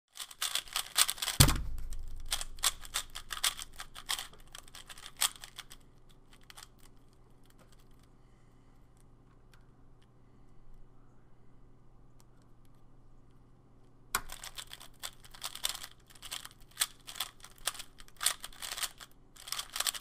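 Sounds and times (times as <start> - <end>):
speedcube clicking and clacking: 0.2 - 8.0, 14.2 - 20.0
loud thump: 1.4 - 2.2.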